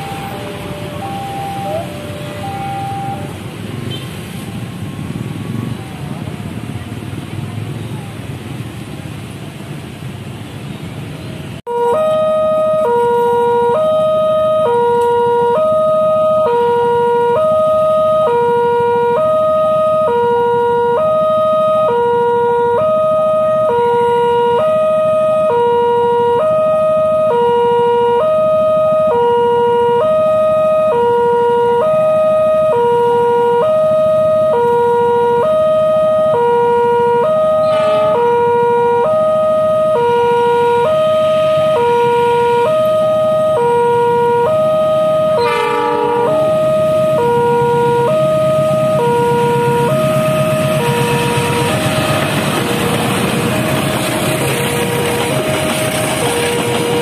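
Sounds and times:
level crossing two-tone alarm: 0:00.0 - 0:03.4, 0:11.7 - 0:52.4.

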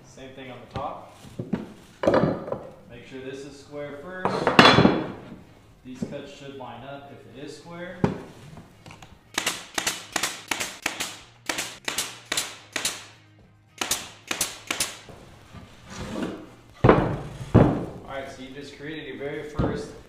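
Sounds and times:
pneumatic nailer firing into wood: 0:09.3 - 0:13.1, 0:13.8 - 0:15.1
heavy wooden thud: 0:16.8 - 0:18.0.

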